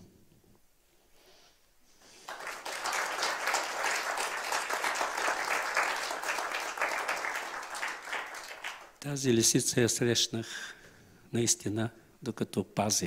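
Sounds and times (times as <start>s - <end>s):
audience applauding: 2.1s - 9.0s.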